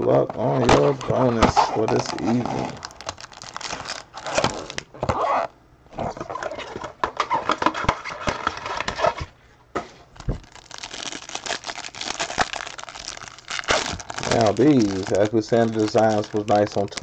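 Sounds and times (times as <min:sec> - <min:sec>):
plastic wrapping crinkling and tearing: 0:00.8 - 0:04.9, 0:10.2 - 0:17.0.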